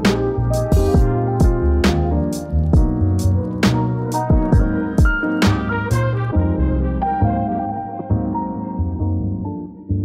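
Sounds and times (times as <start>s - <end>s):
steady drum beat: 0.0s - 3.0s, 4.2s - 5.7s
held instrumental chords: 0.0s - 10.0s.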